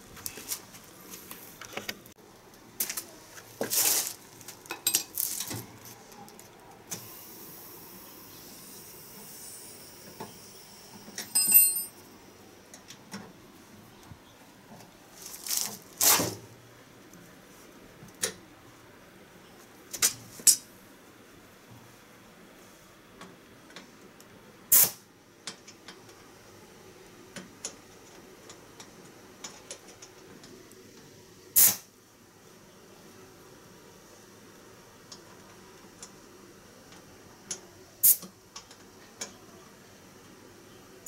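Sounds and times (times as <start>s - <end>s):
cloth rustling: 3.4s - 4.6s, 15.1s - 16.2s
sharp ringing metal clink: 10.6s - 12.0s
small metal clinks and scrapes: 11.1s - 12.0s.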